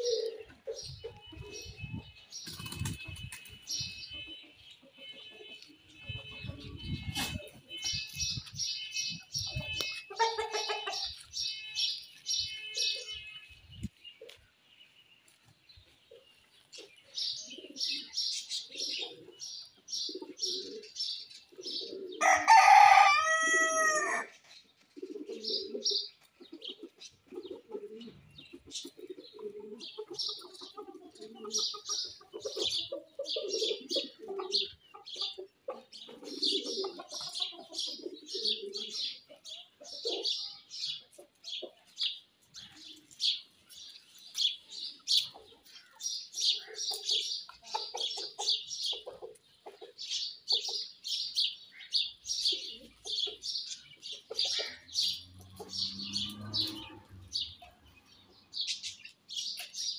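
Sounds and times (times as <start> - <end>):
small birds chirping: 0.0 - 22.2, 24.5 - 59.9
low clucking calls: 9.4 - 11.3
rooster crowing: 22.2 - 24.3.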